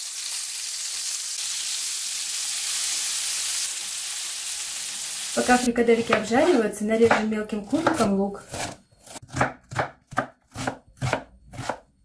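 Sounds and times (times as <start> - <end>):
meatballs sizzling in hot oil: 0.0 - 5.7.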